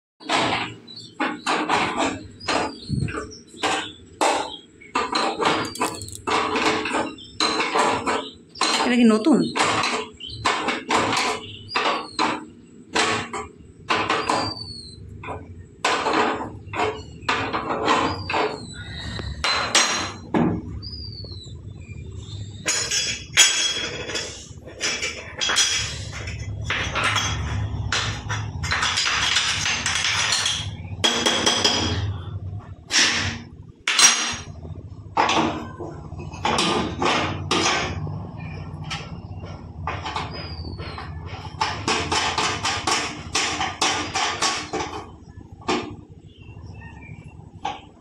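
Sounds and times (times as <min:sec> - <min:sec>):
metal burner parts clanking: 0:00.2 - 0:08.7, 0:22.2 - 0:46.0
metal rubbing and scraping: 0:00.2 - 0:47.3.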